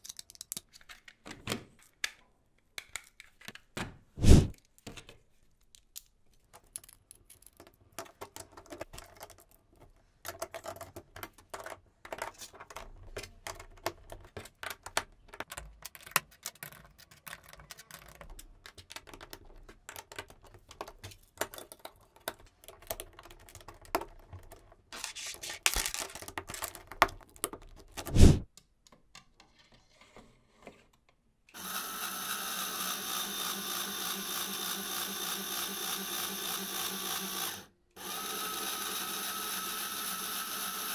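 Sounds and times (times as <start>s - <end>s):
electric motor running: 31.6s - 40.9s.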